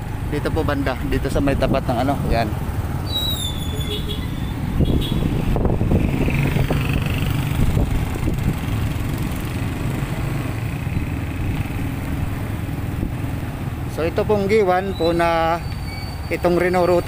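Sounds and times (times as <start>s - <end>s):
road noise: 0.0s - 17.0s
motorcycle engine running: 4.8s - 14.1s.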